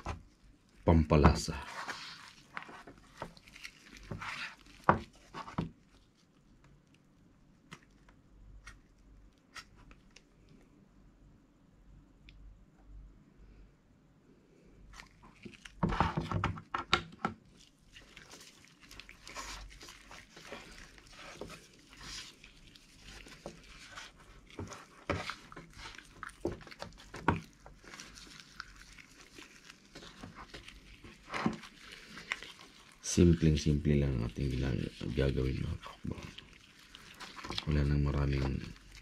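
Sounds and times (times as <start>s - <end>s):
wet squishing of gloved hands: 0.0s - 10.7s, 14.8s - 39.0s
small taps and knocks: 15.8s - 17.4s.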